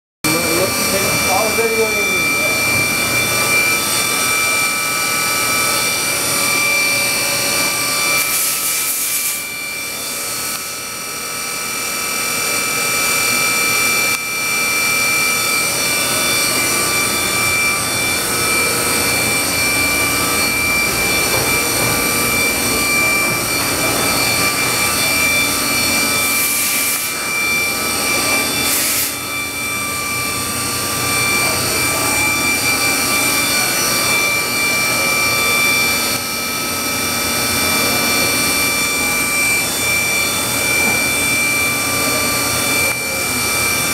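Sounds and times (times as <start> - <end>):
machine whine: 0.2 - 43.9
high constant tones: 0.3 - 43.9.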